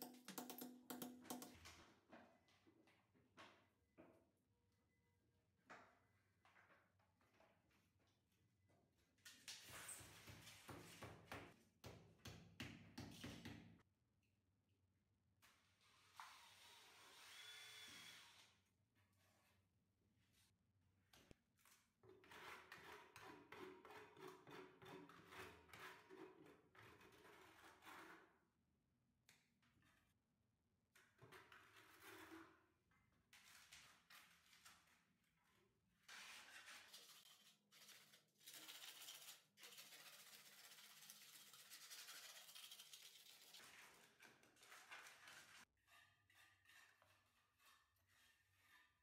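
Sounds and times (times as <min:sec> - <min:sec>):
trowel scraping wet mortar: 0:45.0 - 0:49.0.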